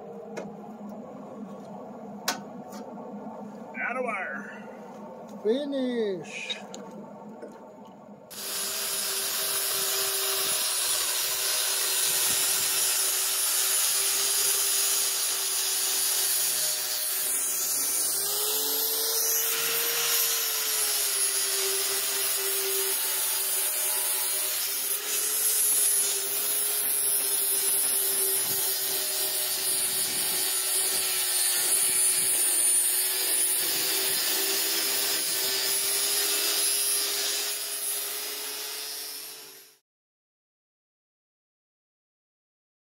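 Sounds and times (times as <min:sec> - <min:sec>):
power tool hissing and humming: 0:08.3 - 0:39.8.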